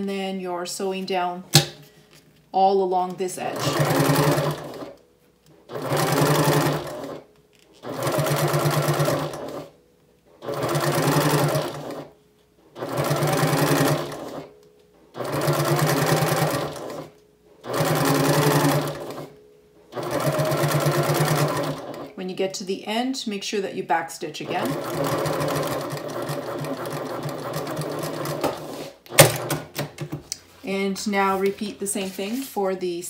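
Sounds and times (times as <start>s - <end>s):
sewing machine stitching: 3.4s - 5.0s, 5.7s - 7.2s, 7.8s - 9.7s, 10.4s - 12.1s, 12.7s - 14.5s, 15.2s - 19.3s, 19.9s - 22.2s, 24.4s - 29.9s.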